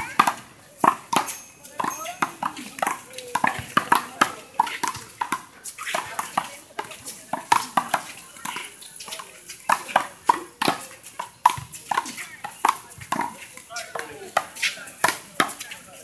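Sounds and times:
ball bouncing on court: 0.0s - 8.6s.

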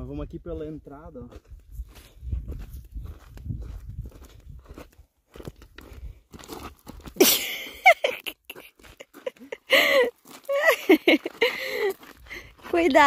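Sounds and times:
footsteps crunching on twigs: 1.3s - 7.2s.

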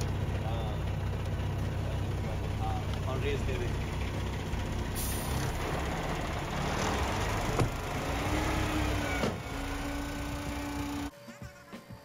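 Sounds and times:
diesel truck engine running: 0.0s - 11.1s.

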